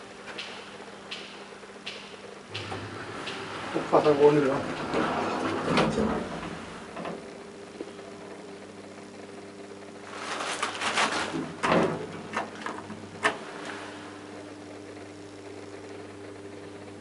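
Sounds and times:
elevator clicks and rattles: 0:00.0 - 0:07.4, 0:10.7 - 0:13.8
elevator electrical hum: 0:00.0 - 0:17.0.

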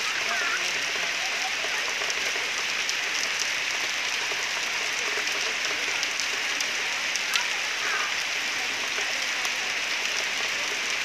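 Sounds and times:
faint raindrop ticks: 0:00.0 - 0:11.0
rain hissing: 0:00.0 - 0:11.0.

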